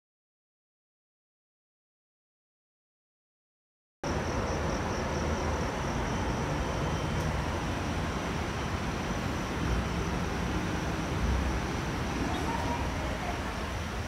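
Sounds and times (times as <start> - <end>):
distant city traffic rumble: 4.0 - 14.0
faint high-pitched tone: 12.1 - 13.6.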